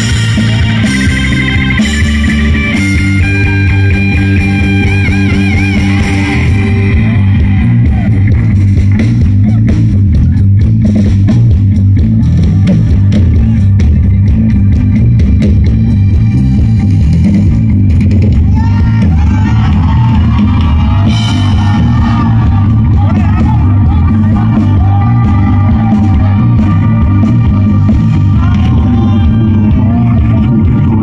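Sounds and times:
live rock band playing: 0.0s - 31.0s.

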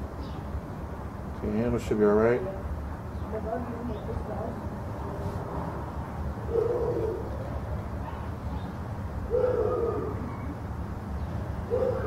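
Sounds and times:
dove cooing: 6.5s - 7.4s, 9.3s - 10.6s, 11.7s - 12.0s.

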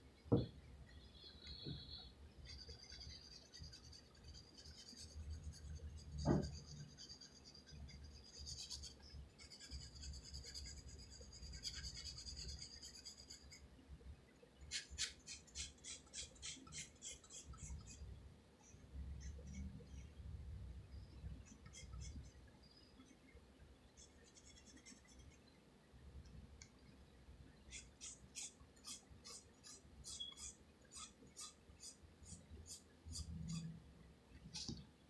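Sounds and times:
pencil scratching on paper: 1.5s - 13.6s, 14.7s - 18.0s, 27.7s - 33.7s.

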